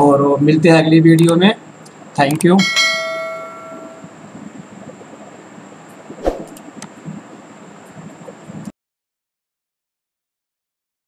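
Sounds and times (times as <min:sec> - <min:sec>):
faint steady high whine: 0:00.0 - 0:08.8
bell-like chime: 0:02.6 - 0:04.1.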